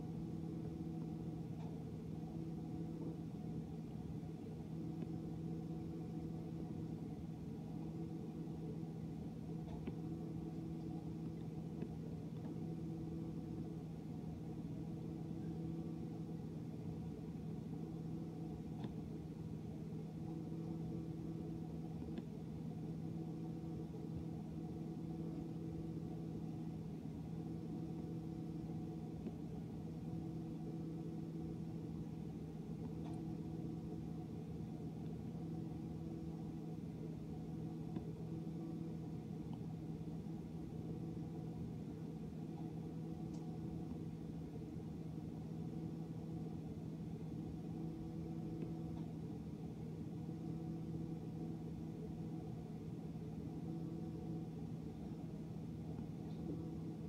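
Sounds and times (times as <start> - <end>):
dishwasher motor hum: 0.0 - 57.0.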